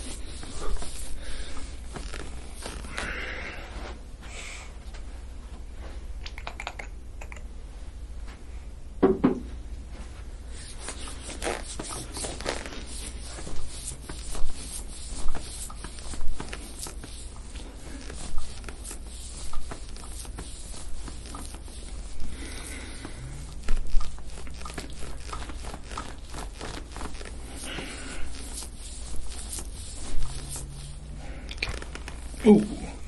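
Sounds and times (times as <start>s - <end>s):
skin rubbing on skin: 0.0s - 3.9s, 10.5s - 33.0s
steady low hum: 0.0s - 33.0s
short rasping strokes: 10.5s - 32.9s.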